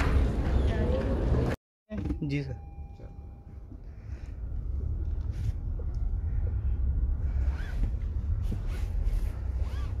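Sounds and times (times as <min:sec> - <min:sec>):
car cabin road rumble: 0:03.8 - 0:10.0.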